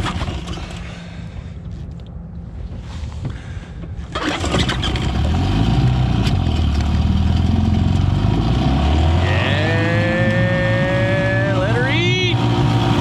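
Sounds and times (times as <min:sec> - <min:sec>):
outboard motor pull-start: 0:00.0 - 0:01.2, 0:03.9 - 0:07.9
outboard motor running: 0:00.0 - 0:02.0, 0:02.6 - 0:13.0.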